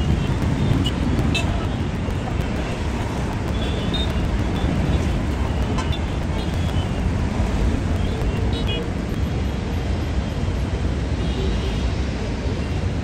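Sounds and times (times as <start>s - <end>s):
jet engines rumbling: 0.0s - 11.0s.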